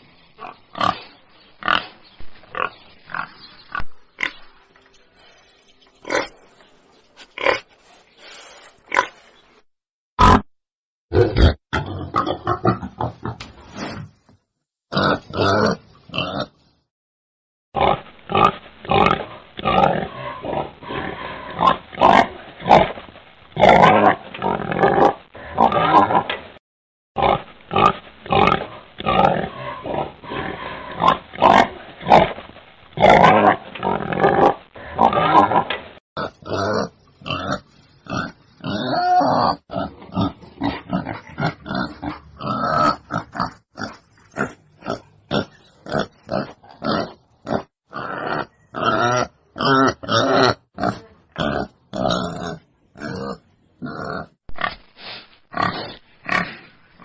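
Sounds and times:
wild boar grunting: 33.0s - 54.8s.

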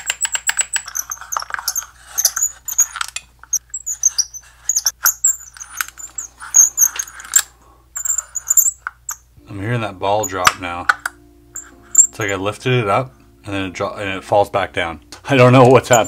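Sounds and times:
metal balls clicking in wooden box: 0.0s - 9.3s.

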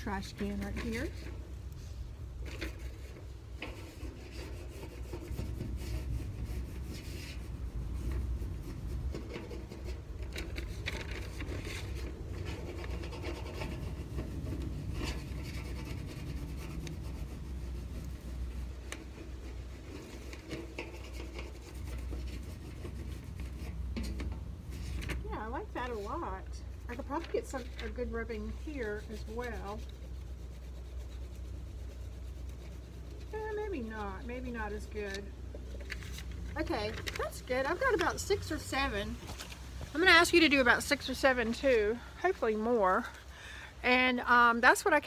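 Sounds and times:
low steady rumble: 0.0s - 45.0s
crayon scraping on paper: 2.5s - 25.0s, 25.6s - 35.3s.

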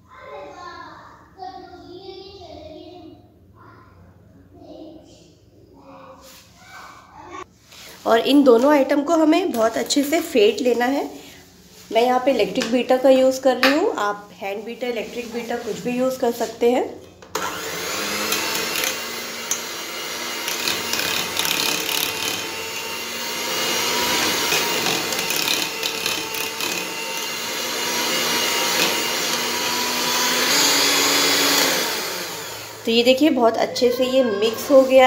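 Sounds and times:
electric hand mixer running: 17.3s - 33.4s.

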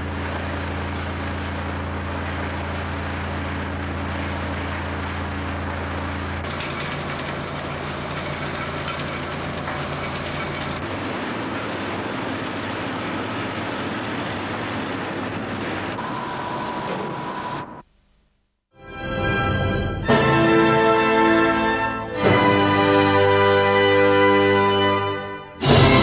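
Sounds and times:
plant equipment running: 0.0s - 17.8s
low hum: 0.0s - 18.6s.

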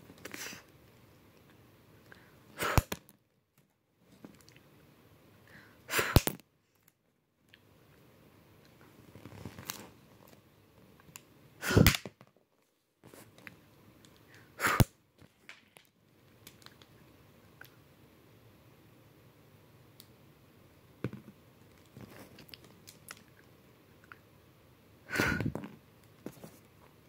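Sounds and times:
mouth puffs of breath: 11.6s - 12.0s, 14.3s - 14.9s, 25.1s - 25.6s.

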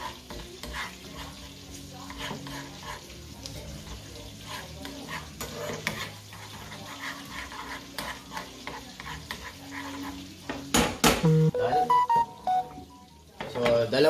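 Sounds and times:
metal spoon scraping frying pan: 0.0s - 10.5s
light sizzle: 0.0s - 10.8s.

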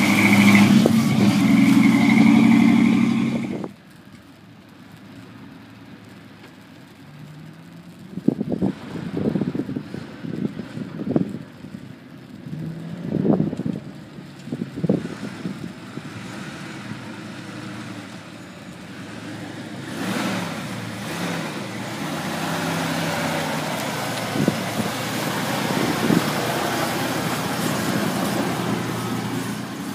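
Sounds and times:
truck engine running: 7.7s - 29.9s.

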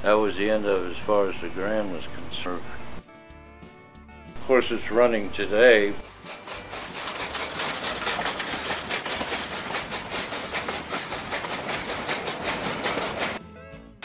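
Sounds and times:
steam locomotive exhaust beat: 5.8s - 13.4s.

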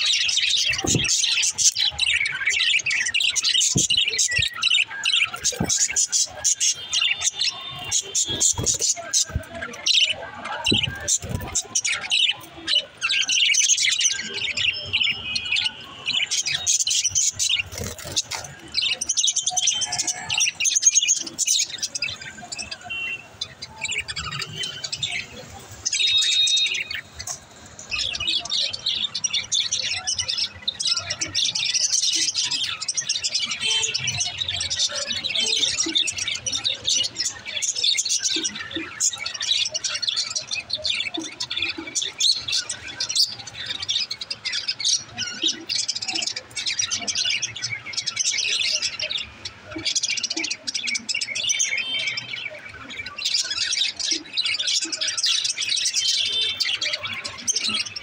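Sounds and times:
budgerigars chattering and chirping: 0.0s - 58.0s.

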